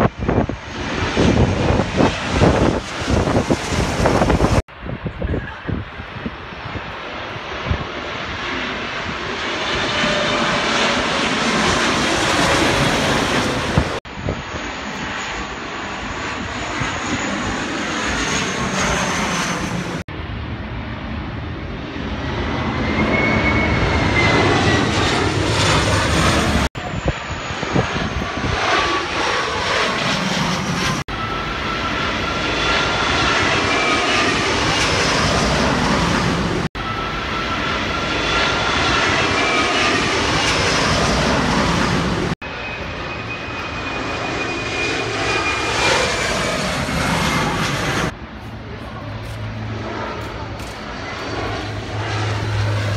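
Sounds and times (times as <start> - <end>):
jet airliners passing overhead: 0.0 - 52.9
faint high whine: 42.5 - 45.8.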